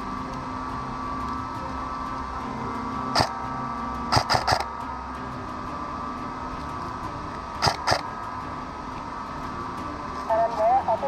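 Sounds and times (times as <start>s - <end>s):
background hum: 0.0s - 11.0s.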